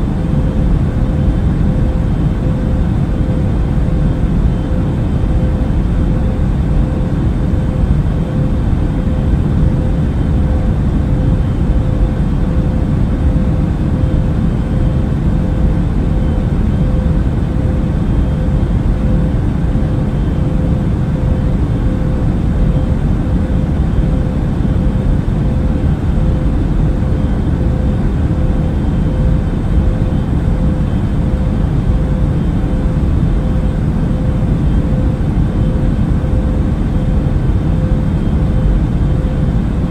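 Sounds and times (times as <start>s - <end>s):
faint constant hum: 0.0s - 39.9s.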